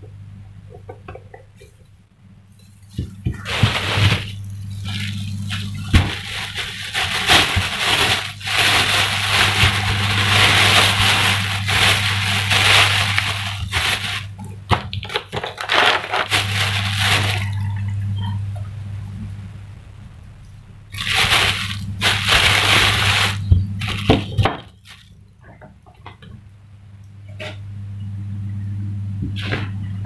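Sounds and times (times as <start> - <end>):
low hum: 0.0 - 14.9, 16.2 - 24.4, 26.5 - 30.0
plastic bag crinkling: 2.7 - 18.4, 20.9 - 25.2.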